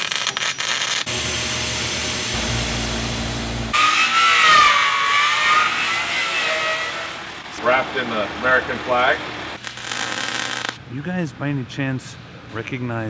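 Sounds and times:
cutting torch hissing: 0.0s - 3.8s
angle grinder whining against steel: 1.0s - 7.3s.

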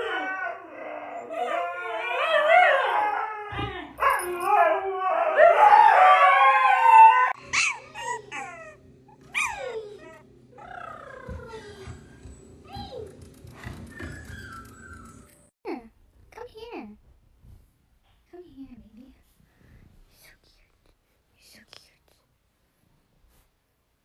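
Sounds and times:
huskies howling: 0.0s - 11.5s
high falling squeals: 13.7s - 15.5s.

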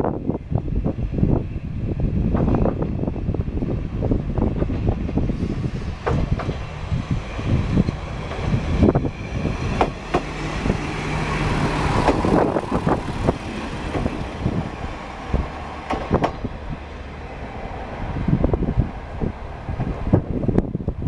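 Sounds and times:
wind noise on microphone: 0.0s - 21.0s
diesel engine humming: 5.7s - 19.8s.

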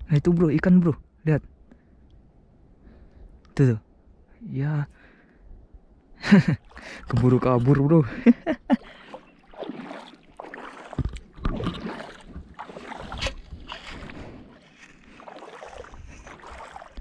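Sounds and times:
seawater sloshing and splashing: 8.7s - 17.0s.

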